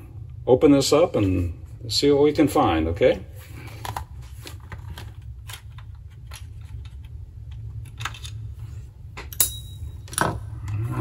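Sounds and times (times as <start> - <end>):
low hum: 0.0 - 11.0.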